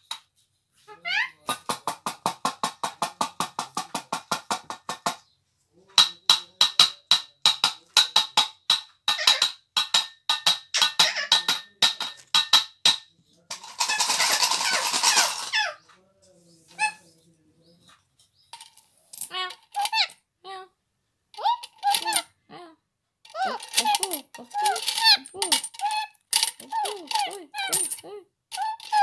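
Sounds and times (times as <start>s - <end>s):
tapping on metal tin: 6.0s - 15.5s, 23.3s - 29.0s
metallic rattling and scraping: 8.2s - 15.6s, 18.2s - 20.2s, 21.4s - 22.3s, 23.3s - 29.0s.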